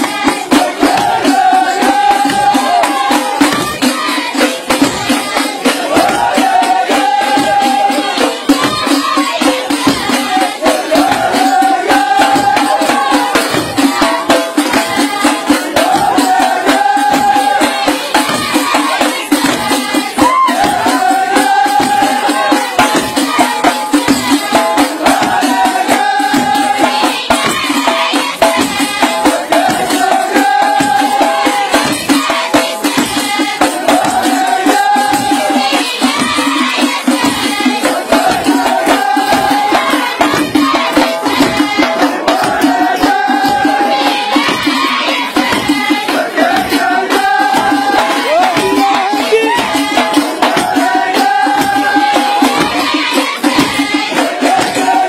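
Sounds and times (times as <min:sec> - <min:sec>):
chorus of men singing: 0:00.0 - 0:55.0
frame drums beating fast: 0:00.0 - 0:55.0.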